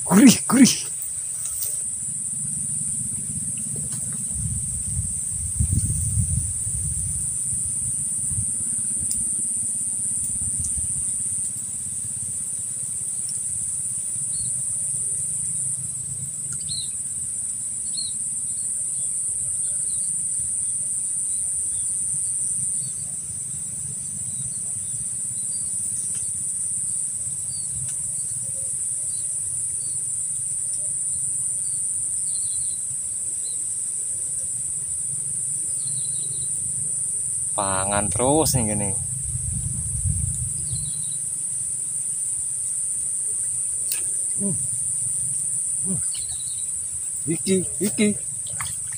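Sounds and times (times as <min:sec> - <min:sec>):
high-pitched insect drone: 0:00.0 - 0:48.9
low background rumble: 0:02.1 - 0:09.2, 0:38.0 - 0:41.7.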